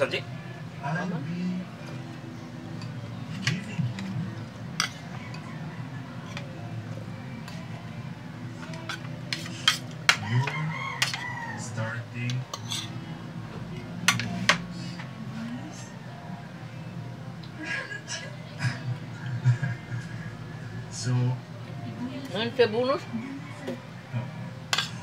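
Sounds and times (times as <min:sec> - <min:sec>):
cutlery clinking on plates: 0:02.8 - 0:04.2, 0:04.8 - 0:05.6, 0:08.6 - 0:11.3, 0:12.2 - 0:13.0, 0:14.0 - 0:14.7, 0:24.7 - 0:25.0.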